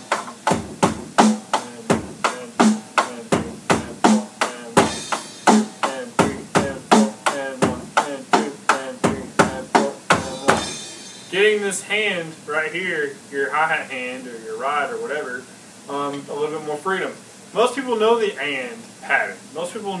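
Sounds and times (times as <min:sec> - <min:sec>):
heavier drum hits: 0:00.0 - 0:11.4
electronic drum kit rock beat: 0:00.0 - 0:11.7
hi-hat on offbeats: 0:00.0 - 0:11.7.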